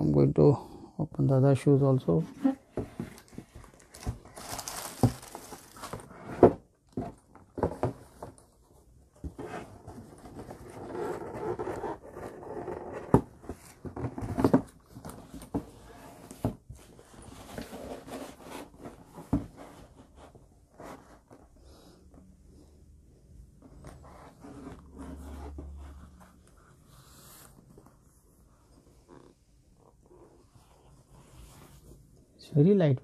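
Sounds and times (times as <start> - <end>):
tissue paper and cloth rustling: 2.0 - 6.2.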